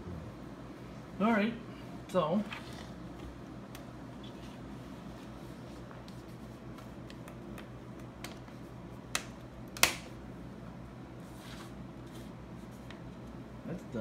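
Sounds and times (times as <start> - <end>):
steady low hum: 0.0 - 14.0
sharp plastic snaps: 9.1 - 10.1.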